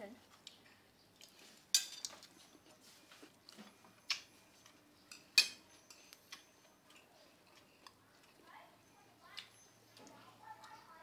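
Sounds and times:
metal spoons clinking on plates: 0:01.7 - 0:02.7, 0:04.0 - 0:07.1.

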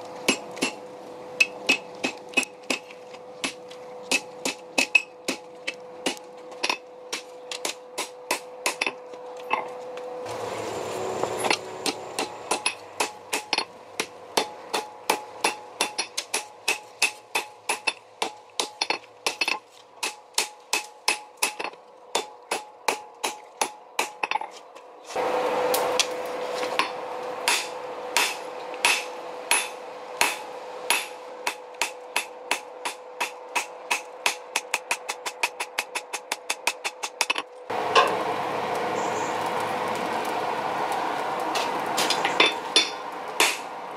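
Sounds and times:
hammer striking hot steel on anvil: 0:00.2 - 0:00.8, 0:01.4 - 0:09.7, 0:11.2 - 0:24.5, 0:26.8 - 0:38.2, 0:42.0 - 0:43.7
steady rushing noise: 0:25.1 - 0:43.9.

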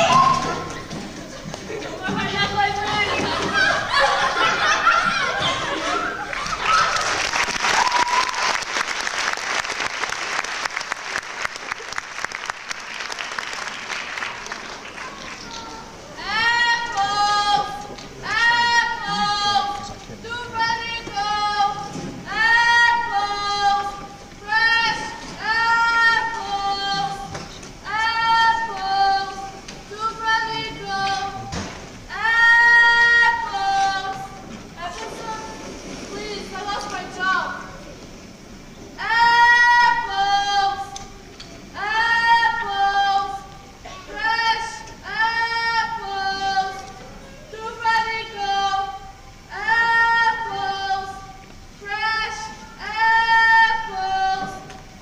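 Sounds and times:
people speaking: 0:00.0 - 0:06.8, 0:14.9 - 0:31.5, 0:32.1 - 0:38.0
audience applauding: 0:06.2 - 0:16.0.

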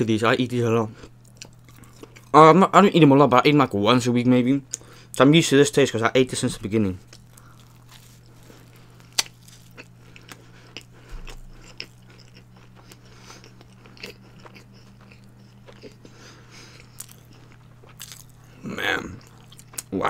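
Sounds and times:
person chewing food: 0:01.0 - 0:02.3, 0:07.0 - 0:20.0.

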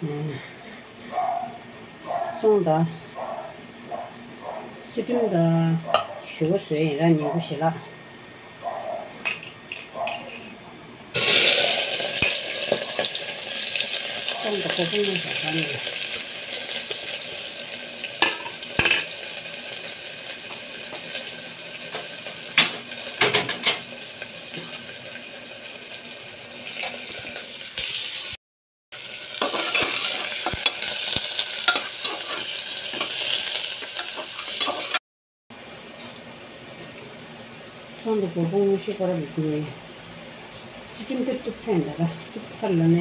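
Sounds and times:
food sizzling in a pan: 0:11.2 - 0:28.4, 0:29.0 - 0:35.0.

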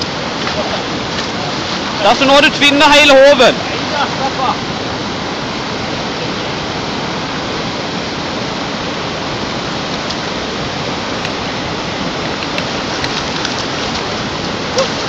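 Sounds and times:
water rushing over rocks: 0:00.0 - 0:15.0
faint clicks: 0:12.2 - 0:14.1.

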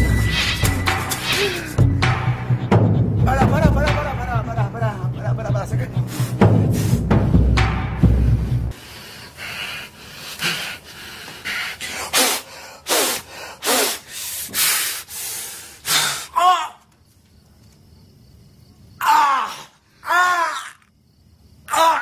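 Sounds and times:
man breathing hard: 0:01.1 - 0:02.0, 0:06.0 - 0:16.4.

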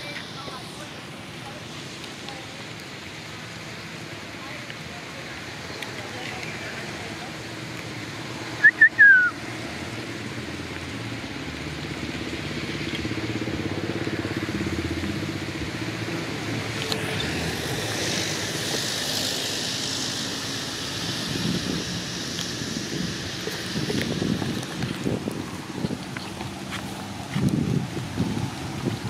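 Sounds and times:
rushing hiss: 0:12.4 - 0:29.0.

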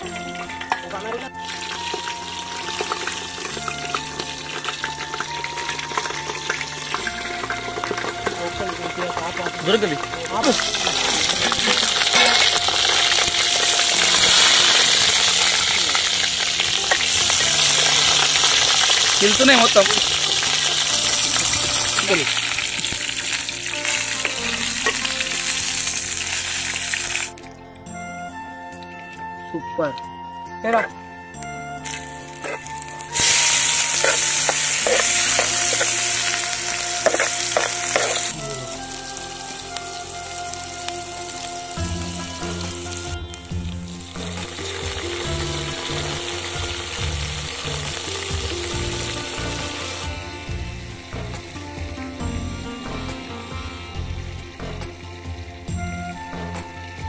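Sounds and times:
vegetables sizzling in hot oil: 0:00.0 - 0:27.4, 0:31.8 - 0:51.6.

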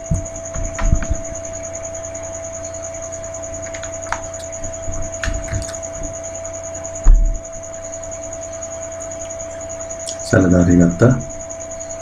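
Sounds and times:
electrical hum: 0:00.0 - 0:12.0
faint high-pitched whine: 0:00.0 - 0:12.0.

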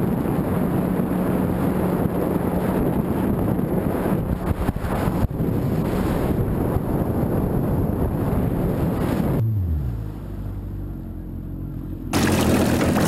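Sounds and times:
wind buffeting microphone: 0:00.0 - 0:09.8
jet ski engine: 0:00.0 - 0:13.0
rushing water: 0:12.1 - 0:13.0.

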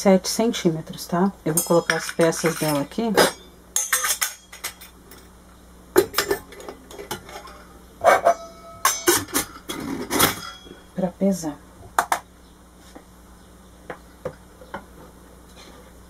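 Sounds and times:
metal percolator parts clinking: 0:01.5 - 0:05.3, 0:06.0 - 0:10.9.

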